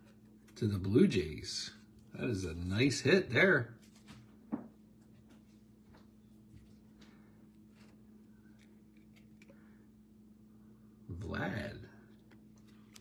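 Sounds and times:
low electrical hum: 0:00.0 - 0:13.0
trading card clicks and rustles: 0:05.1 - 0:09.7, 0:12.1 - 0:13.0.

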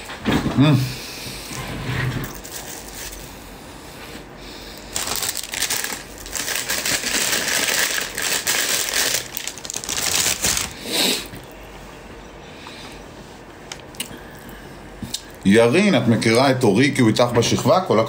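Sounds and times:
flaky pastry crinkling and tearing: 0:02.3 - 0:03.3, 0:04.9 - 0:10.8.

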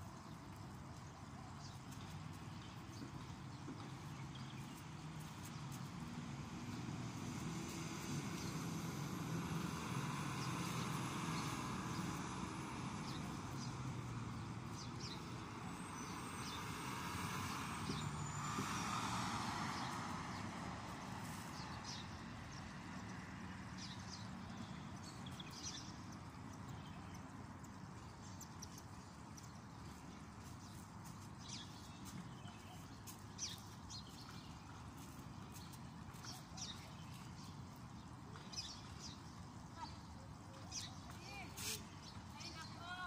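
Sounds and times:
faint street ambience: 0:00.0 - 0:43.0
car passing: 0:06.0 - 0:24.5.

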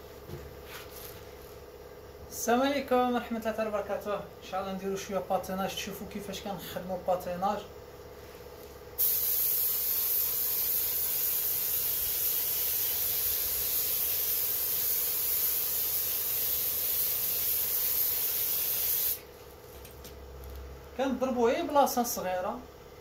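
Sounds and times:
spray gun hissing: 0:09.0 - 0:19.2.

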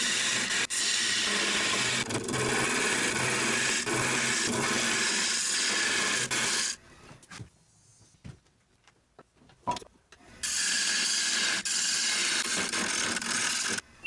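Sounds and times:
lathe tool cutting wood: 0:00.0 - 0:06.8, 0:10.4 - 0:13.8.

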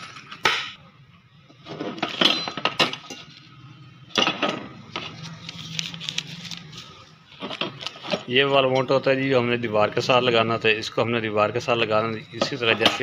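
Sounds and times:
metal brackets clinking: 0:02.0 - 0:03.3.

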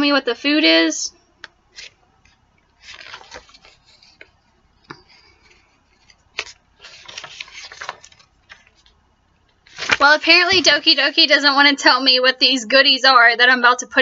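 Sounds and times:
glossy pages rustling and flapping: 0:01.7 - 0:11.3.

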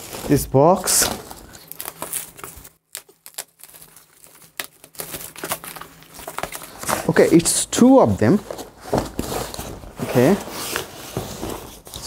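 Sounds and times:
plastic shrink wrap tearing: 0:00.0 - 0:07.1.

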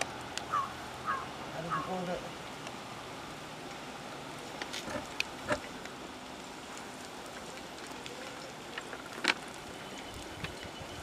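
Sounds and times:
small crackles: 0:03.6 - 0:11.0.

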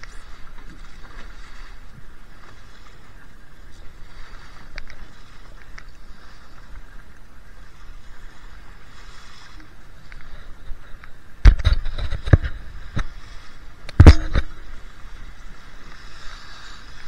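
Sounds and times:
water rushing along hull: 0:00.0 - 0:17.0
wind buffeting microphone: 0:00.0 - 0:17.0
faint ticks: 0:04.7 - 0:06.0, 0:10.0 - 0:11.2.

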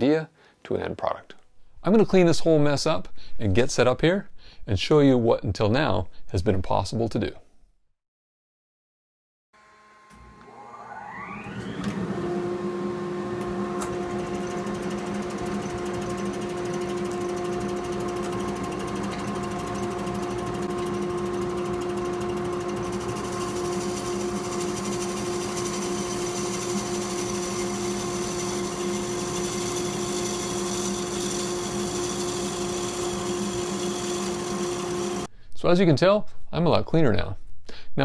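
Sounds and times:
wood lathe whine and hum: 0:09.6 - 0:35.3.

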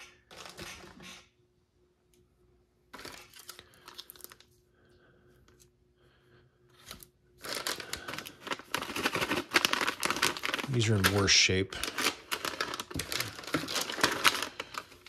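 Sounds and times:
plastic packets crinkling: 0:02.9 - 0:04.5, 0:06.8 - 0:15.0.

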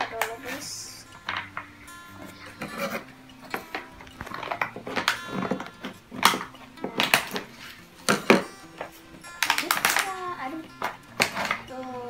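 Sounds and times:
soft background music: 0:00.0 - 0:12.0
plastic packaging crackling: 0:02.2 - 0:11.8.

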